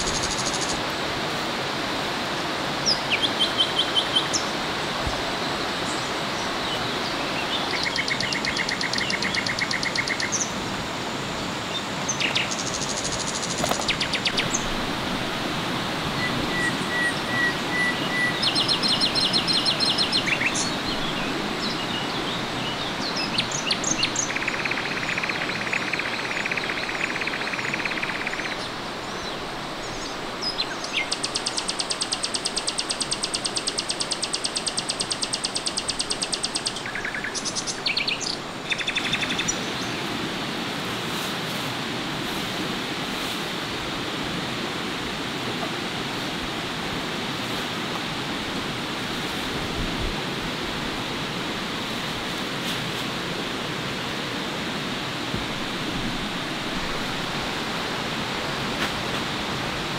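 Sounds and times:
birds and insects trilling: 0.0 - 0.9, 2.7 - 40.5
stream rushing: 0.0 - 59.9.

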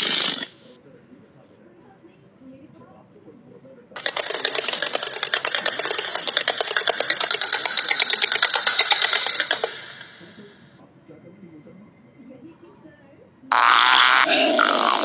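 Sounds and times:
rapid rattling clatter: 4.0 - 10.5.

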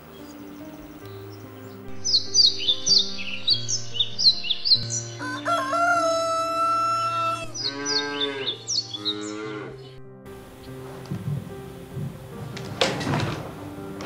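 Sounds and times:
small birds chirping: 0.0 - 6.2, 6.9 - 12.4
soft background music: 0.0 - 14.0
rooster crowing: 5.2 - 8.5
farm animal call: 5.2 - 9.9.

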